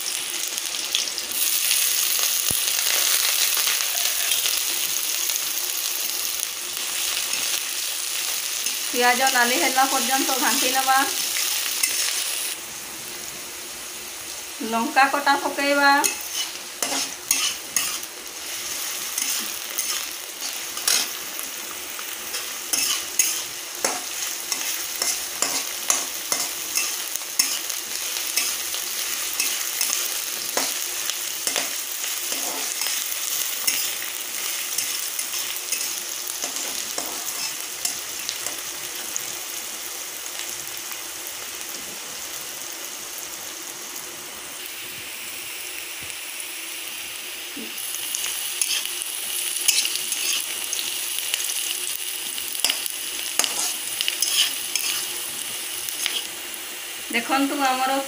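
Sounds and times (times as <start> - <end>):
onion frying in hot oil: 0.0 - 58.0
spatula scraping a pan: 16.0 - 21.2, 22.3 - 30.8, 31.4 - 38.0, 48.6 - 49.0, 49.6 - 50.8, 52.6 - 55.2, 55.9 - 56.3.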